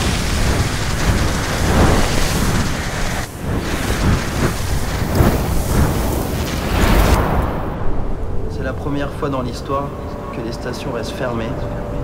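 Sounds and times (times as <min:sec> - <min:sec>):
skis sliding through powder snow: 0:00.0 - 0:07.2
wind: 0:00.0 - 0:12.0.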